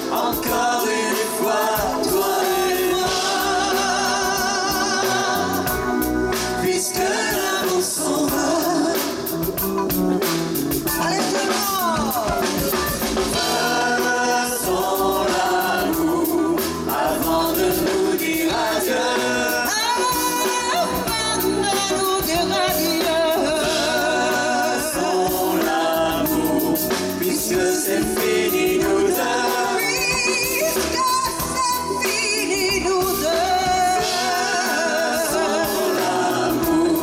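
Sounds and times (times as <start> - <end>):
backing singers: 0.0 - 9.6, 10.9 - 37.0
live band playing: 0.0 - 37.0
woman singing: 19.4 - 37.0.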